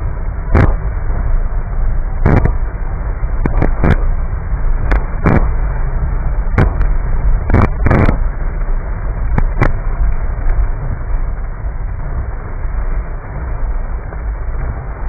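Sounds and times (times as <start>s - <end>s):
car cabin rumble on wet road: 0.0s - 15.0s
sharp taps: 3.4s - 4.0s.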